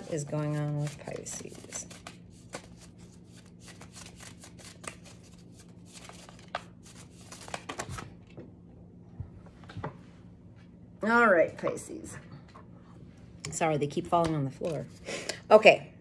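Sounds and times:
cards being shuffled: 0.0 - 8.4, 14.2 - 15.0.

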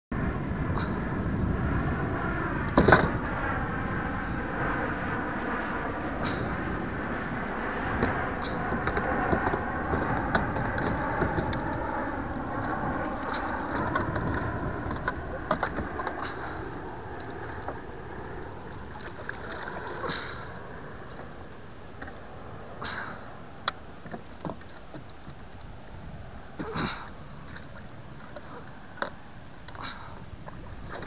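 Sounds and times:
water sloshing around kayak: 12.6 - 17.9, 18.6 - 21.3, 26.6 - 31.0.

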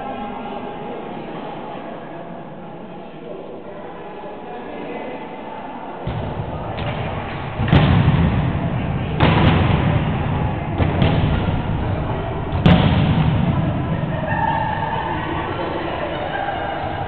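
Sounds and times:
volleyball being struck in gym: 6.0 - 15.4.

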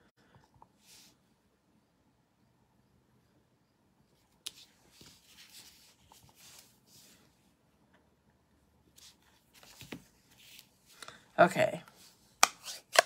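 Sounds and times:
paper rustling: 8.9 - 11.0.

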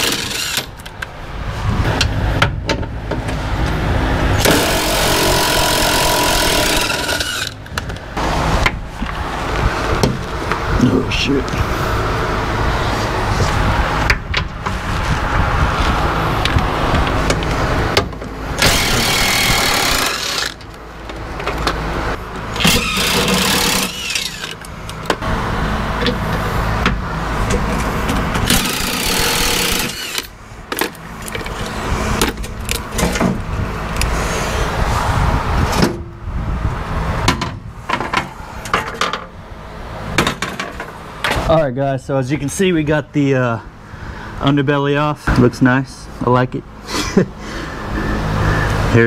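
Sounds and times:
power driver spinning out bolts: 0.0 - 1.0, 4.4 - 7.7, 18.6 - 20.7, 22.5 - 25.2, 28.2 - 33.2.

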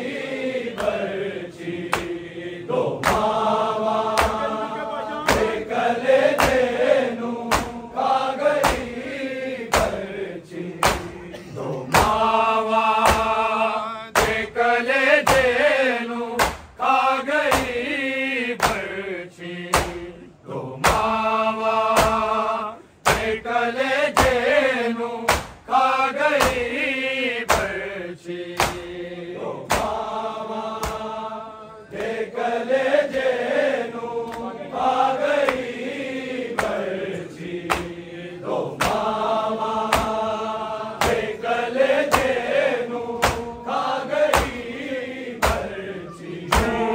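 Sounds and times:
men chanting a lament: 0.0 - 46.9
sharp rhythmic strikes: 3.0 - 9.1, 10.7 - 15.7, 16.3 - 17.9, 19.7 - 20.2, 20.8 - 23.5, 30.7 - 31.1, 38.7 - 42.6, 43.2 - 44.8, 45.4 - 45.8, 46.4 - 46.9.

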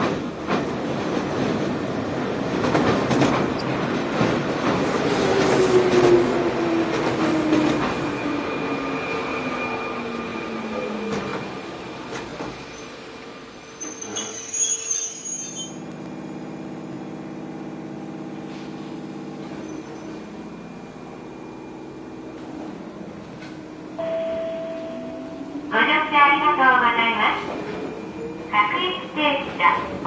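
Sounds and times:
train running over bridge: 0.0 - 14.0, 15.8 - 30.0
train electrical equipment humming: 0.0 - 30.0
high wheel squeal: 13.6 - 15.8, 19.5 - 20.3.

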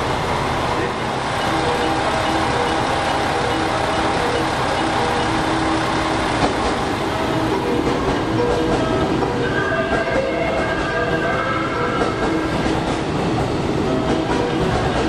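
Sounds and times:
train rumble: 0.0 - 15.0
electronic train horn melody: 0.8 - 6.4, 7.1 - 12.7.

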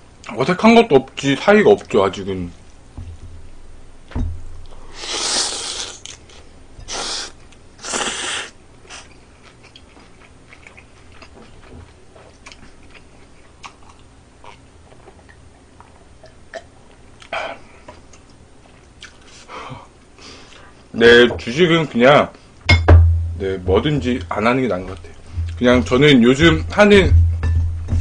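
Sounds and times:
loud noodle slurping: 4.9 - 6.2, 6.9 - 9.1
chewing with small clicks: 8.9 - 19.3.

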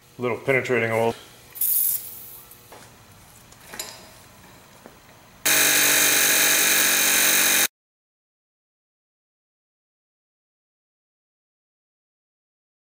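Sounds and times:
impact wrench hammering: 5.5 - 7.7.

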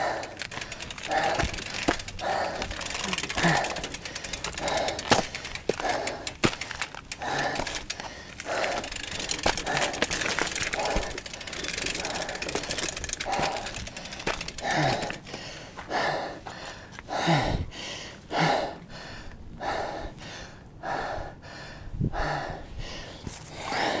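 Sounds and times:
fast fine ticking: 0.0 - 15.4
person breathing hard: 0.0 - 24.0.

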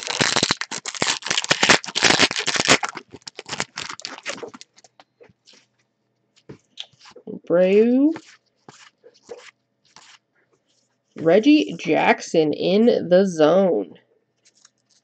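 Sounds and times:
foil wrapper tearing and crinkling: 0.0 - 5.6, 8.2 - 10.2, 14.4 - 15.0
cards sliding with rustles: 6.4 - 7.2, 8.1 - 10.9, 14.4 - 15.0.

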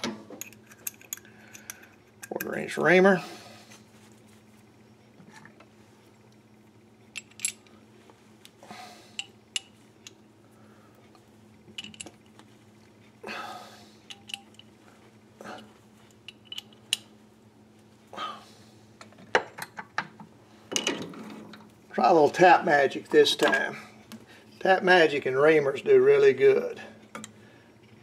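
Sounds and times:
faint low hum: 0.0 - 28.0
light metal clicks and clinks: 14.1 - 14.7.

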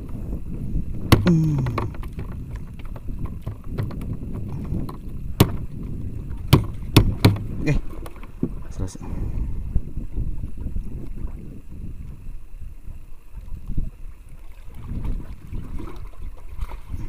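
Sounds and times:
water noise: 0.0 - 17.0
wind: 0.0 - 17.0
sharp knocks on wooden boat: 1.1 - 8.6.

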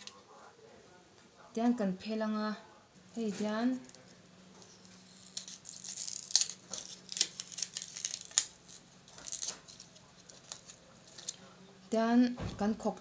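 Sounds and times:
plastic disc crackling and snapping: 4.6 - 11.4.

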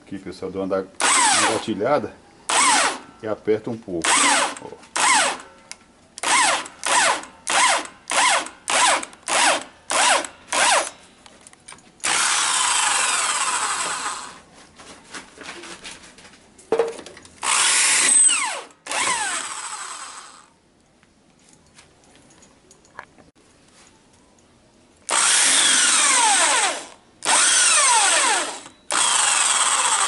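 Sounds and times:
electric drill spinning: 4.1 - 5.4, 6.2 - 10.9, 12.0 - 14.4, 17.4 - 20.5, 25.1 - 30.0.

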